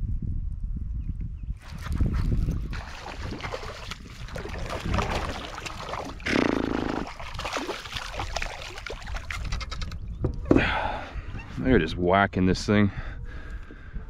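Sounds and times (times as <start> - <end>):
wind rumble on microphone: 0.0 - 14.0
fish splashing at water surface: 1.6 - 9.7.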